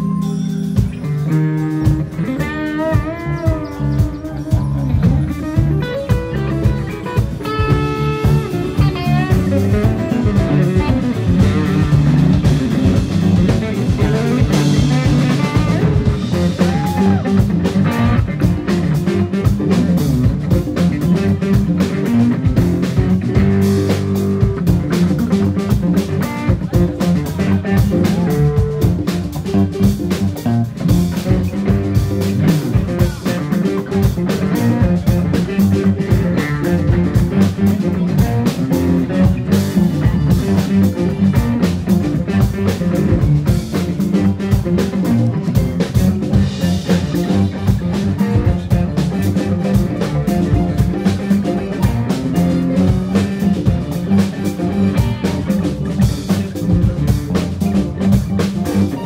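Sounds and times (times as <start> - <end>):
bass guitar: 0.0 - 59.0
guitar lead: 0.0 - 59.0
steady drum beat: 0.0 - 59.0.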